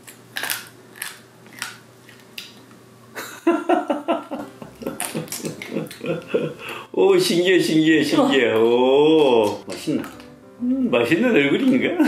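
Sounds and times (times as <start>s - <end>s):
crisp crunching bites: 0.0s - 2.7s
person's vocal sounds: 10.6s - 11.0s.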